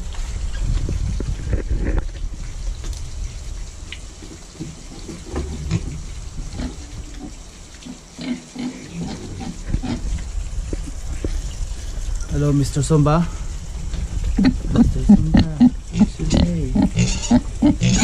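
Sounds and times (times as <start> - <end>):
piglets grunting and snuffling: 4.8 - 12.0, 14.2 - 18.0.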